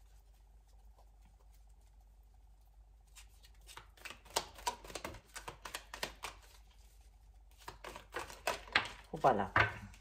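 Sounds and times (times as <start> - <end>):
cards being shuffled: 3.1 - 9.2.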